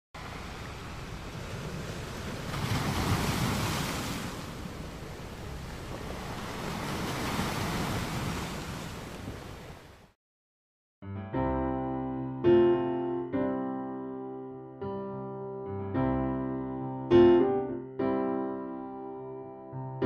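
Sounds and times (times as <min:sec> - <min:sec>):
waves breaking: 0:00.2 - 0:10.2.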